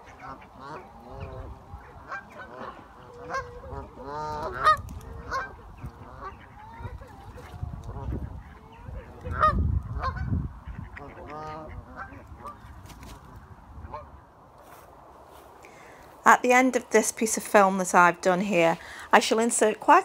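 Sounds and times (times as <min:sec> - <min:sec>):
geese honking: 0:00.0 - 0:12.8, 0:13.8 - 0:14.2.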